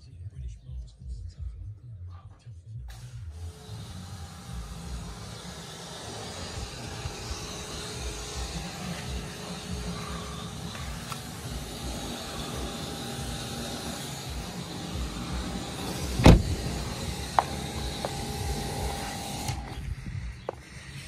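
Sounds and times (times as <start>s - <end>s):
low rumble: 10.9s - 20.4s
car door shutting thump: 14.4s - 18.6s.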